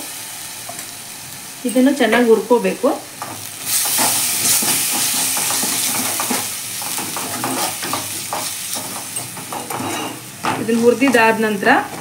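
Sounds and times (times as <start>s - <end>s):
paste sizzling in hot oil: 0.0s - 12.0s
steel ladle scraping pan: 3.2s - 10.7s.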